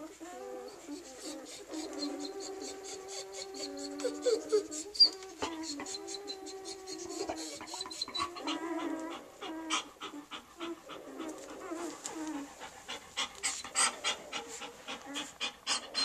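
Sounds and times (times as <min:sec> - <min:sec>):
thin whimpering squeaks: 0:00.3 - 0:12.6, 0:13.4 - 0:16.0
dog panting rapidly: 0:07.0 - 0:16.0.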